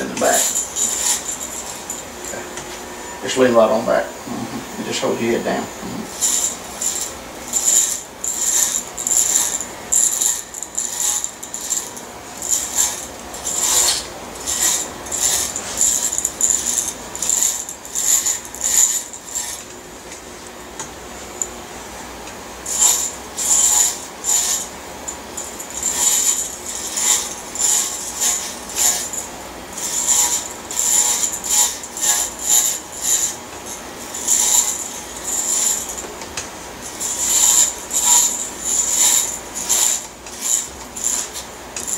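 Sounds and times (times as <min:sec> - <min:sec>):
electric hair clippers buzzing: 0:04.4 - 0:19.8.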